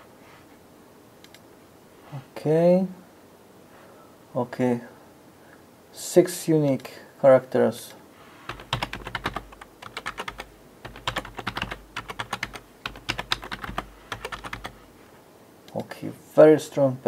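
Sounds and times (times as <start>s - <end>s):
keyboard typing clicks: 8.5s - 14.8s.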